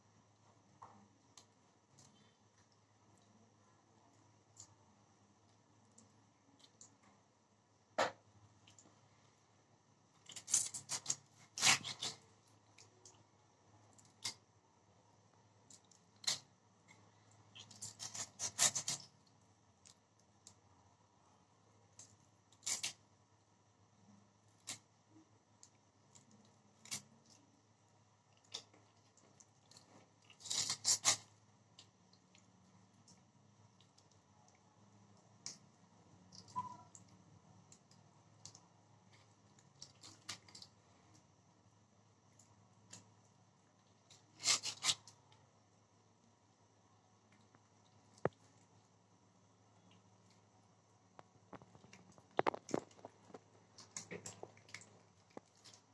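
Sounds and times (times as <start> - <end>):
blade slicing and scraping fish: 44.3 - 45.0.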